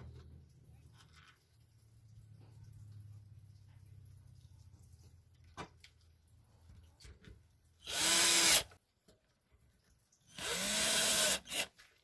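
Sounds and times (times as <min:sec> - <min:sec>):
cordless drill motor whining: 0:07.8 - 0:08.7, 0:10.4 - 0:11.7.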